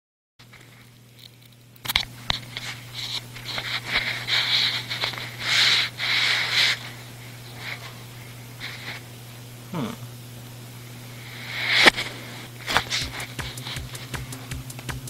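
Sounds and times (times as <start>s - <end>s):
low electrical hum: 0.4s - 15.0s
short hissing bursts: 3.8s - 7.8s.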